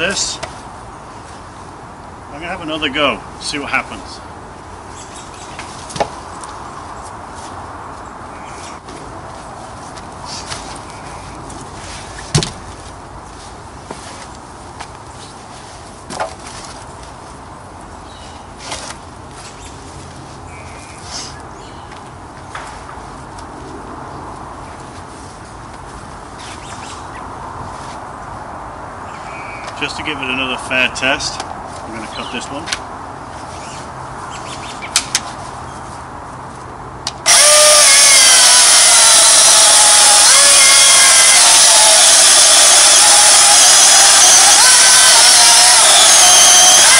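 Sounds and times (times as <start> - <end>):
steady background noise: 0.0 - 46.9
electric chainsaw cutting log: 37.2 - 46.9.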